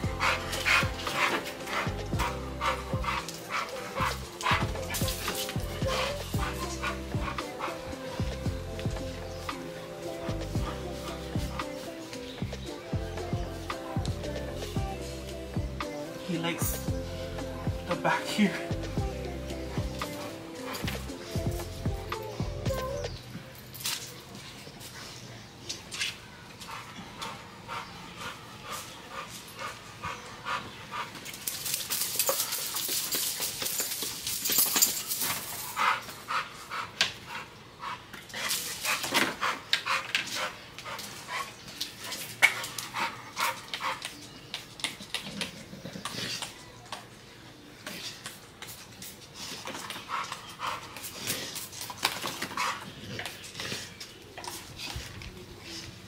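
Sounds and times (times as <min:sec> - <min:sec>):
dog panting: 0:00.0 - 0:14.8, 0:26.6 - 0:31.6, 0:35.6 - 0:44.3, 0:49.3 - 0:56.0.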